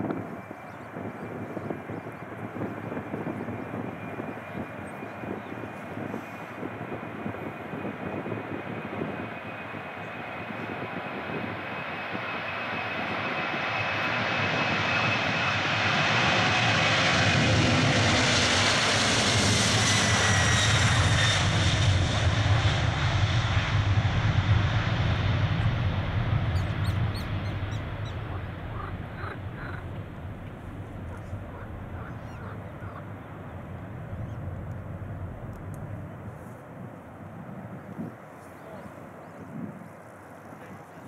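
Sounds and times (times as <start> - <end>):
jet engines deep rumble: 0.0 - 41.0.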